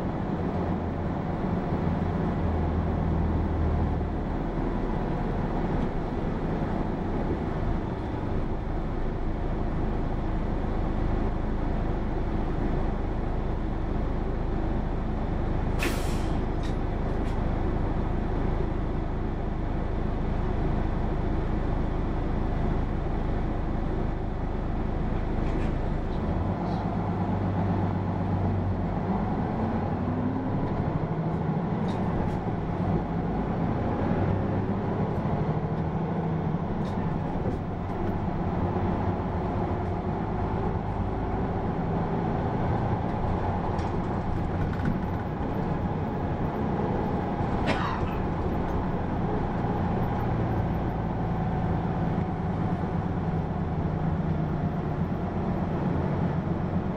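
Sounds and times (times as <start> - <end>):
bus engine and road noise: 0.0 - 56.9
sharp air hiss: 15.8 - 16.4.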